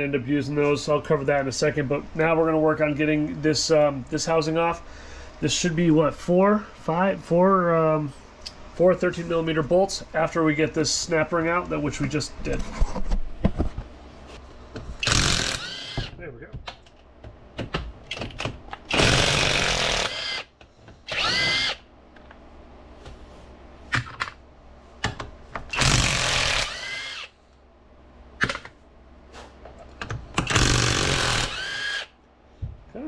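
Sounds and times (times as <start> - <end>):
power tool whining: 15.0 - 16.1, 18.9 - 20.5, 21.1 - 21.8, 25.7 - 27.3, 30.4 - 32.1.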